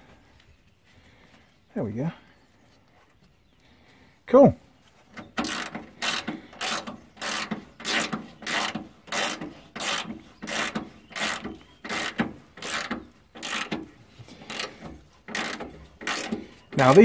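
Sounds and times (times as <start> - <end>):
ratchet wrench clicking: 5.4 - 13.8, 15.3 - 16.4.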